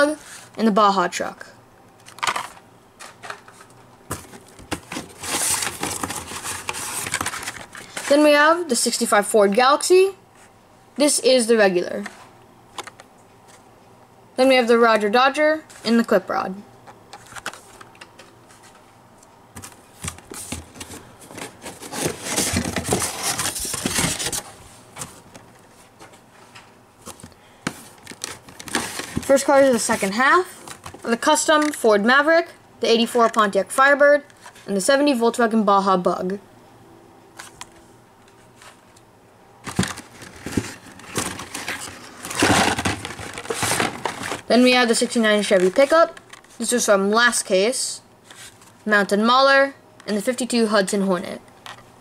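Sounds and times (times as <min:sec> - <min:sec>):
plastic blister packs crinkling: 0:02.0 - 0:08.2, 0:27.0 - 0:31.8, 0:39.6 - 0:44.5
cardboard scraping and rubbing: 0:03.0 - 0:08.2, 0:19.6 - 0:25.3, 0:39.7 - 0:44.5.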